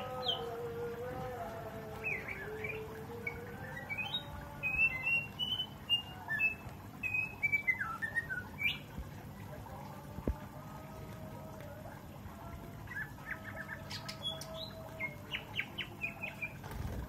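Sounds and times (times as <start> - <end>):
bird singing whistled notes: 2.1 - 8.9.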